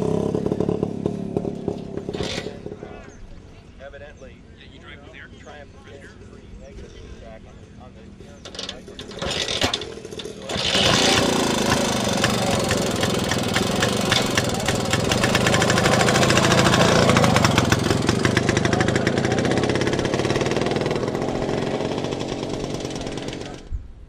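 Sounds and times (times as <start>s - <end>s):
small motorcycle engine running: 0.0s - 3.0s, 8.4s - 23.7s.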